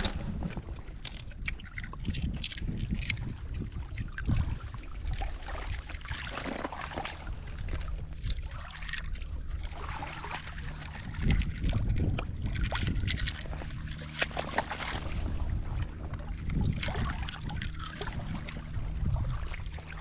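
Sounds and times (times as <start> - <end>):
low rumble: 0.0 - 20.0.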